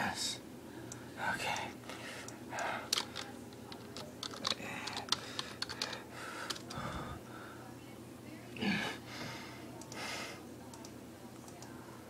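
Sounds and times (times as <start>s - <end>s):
laptop keyboard typing: 2.6s - 6.8s.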